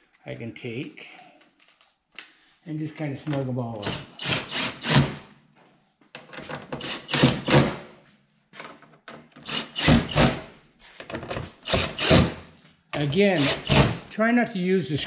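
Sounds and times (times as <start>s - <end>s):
cordless drill driving screws: 3.8s - 5.2s, 6.7s - 7.8s, 9.4s - 10.4s, 11.6s - 12.4s, 13.0s - 14.0s.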